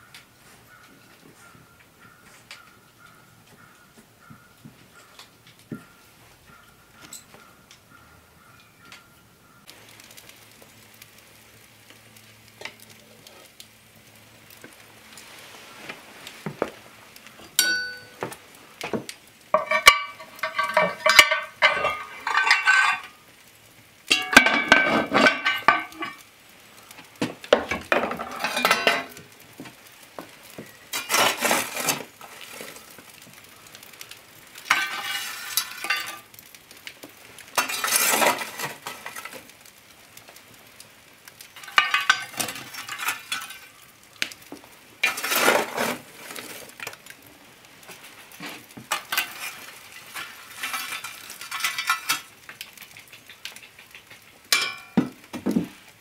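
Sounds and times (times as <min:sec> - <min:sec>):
shovel scraping and clattering coals: 0:06.5 - 0:07.5, 0:09.7 - 0:13.8, 0:14.4 - 0:56.0
metal lid clinking and scraping: 0:17.4 - 0:18.2, 0:19.6 - 0:23.1, 0:24.1 - 0:26.2, 0:27.8 - 0:29.2, 0:30.9 - 0:32.1, 0:34.7 - 0:36.2, 0:37.6 - 0:39.3, 0:41.6 - 0:43.7, 0:45.0 - 0:46.4, 0:48.9 - 0:52.3, 0:54.5 - 0:55.0.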